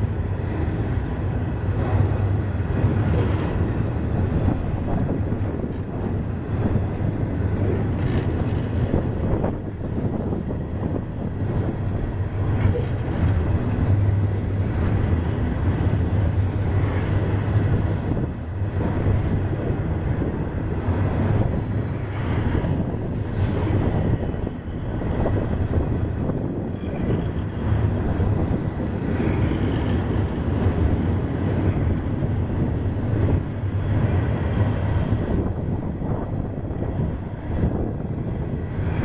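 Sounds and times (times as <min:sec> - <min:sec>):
train wheels rumbling on rails: 0:00.0 - 0:39.0
train wheel clicks: 0:06.5 - 0:09.2.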